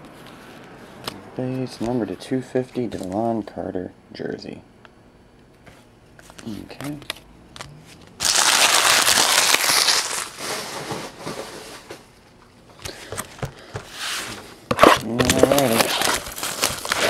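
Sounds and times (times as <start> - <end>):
plastic packaging crinkling: 8.2 - 11.7, 14.7 - 17.0.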